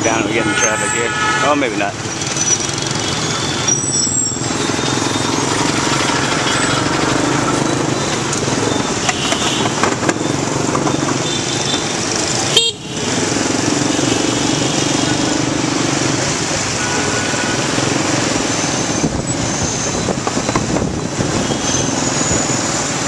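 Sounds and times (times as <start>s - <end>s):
vehicle horns beeping: 0.0s - 1.9s, 2.9s - 10.0s, 10.9s - 13.2s, 16.8s - 17.8s, 21.2s - 22.0s.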